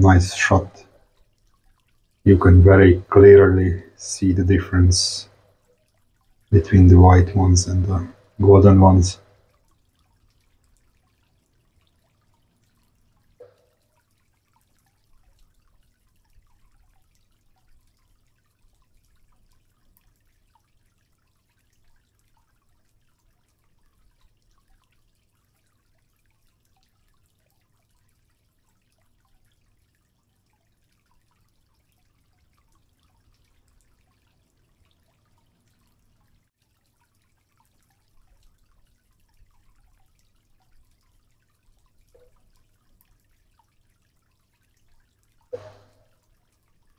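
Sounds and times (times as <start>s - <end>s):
low steady hum: 0.0s - 20.7s, 37.3s - 46.9s
aquarium water dripping: 0.0s - 46.9s.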